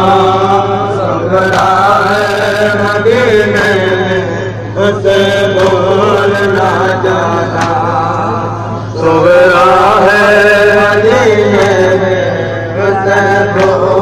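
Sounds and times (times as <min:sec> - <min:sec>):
men chanting over loudspeakers: 0:00.0 - 0:14.0
sharp slaps: 0:01.4 - 0:02.0, 0:05.4 - 0:06.6, 0:07.5 - 0:08.0, 0:13.5 - 0:14.0.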